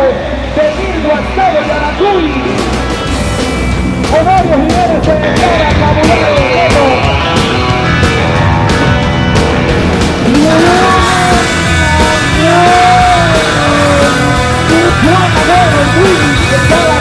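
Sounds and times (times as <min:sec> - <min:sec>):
loud rock music: 0:00.0 - 0:17.0
off-road vehicle engine revving: 0:07.9 - 0:17.0.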